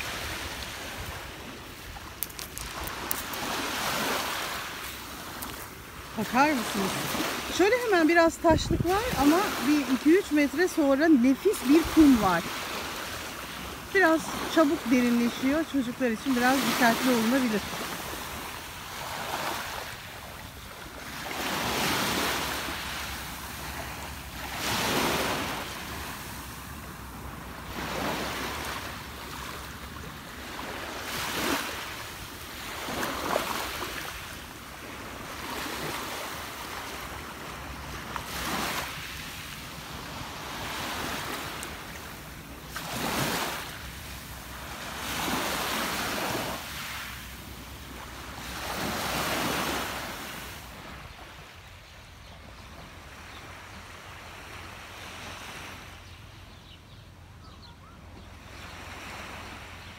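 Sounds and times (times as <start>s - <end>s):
waves washing on stony shore: 0.0s - 51.0s.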